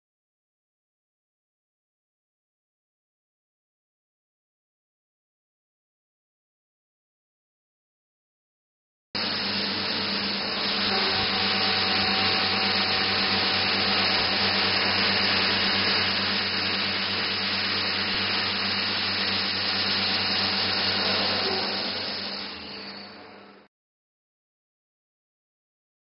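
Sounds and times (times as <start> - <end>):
milling machine cutting steel: 9.2 - 23.7.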